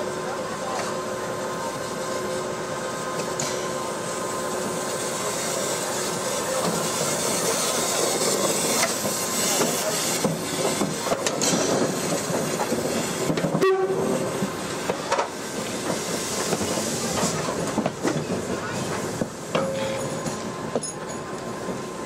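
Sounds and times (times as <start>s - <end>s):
train wheels clattering on rails: 6.5s - 22.0s.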